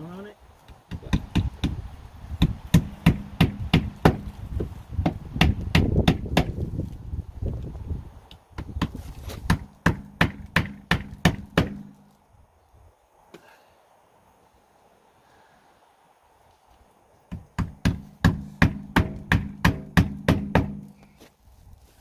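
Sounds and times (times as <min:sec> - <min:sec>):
hammer striking nails: 0:00.9 - 0:01.8, 0:02.4 - 0:04.3, 0:05.0 - 0:06.6, 0:08.6 - 0:12.0, 0:17.3 - 0:20.9.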